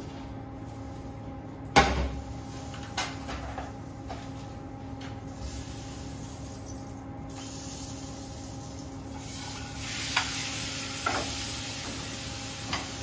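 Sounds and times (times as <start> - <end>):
steady hum: 0.0 - 13.0
meat sizzling in a frying pan: 7.3 - 13.0.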